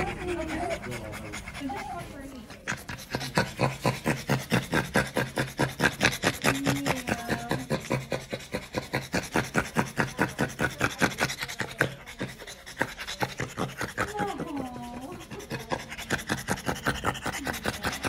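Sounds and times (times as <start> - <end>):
dog panting: 0.0 - 18.0.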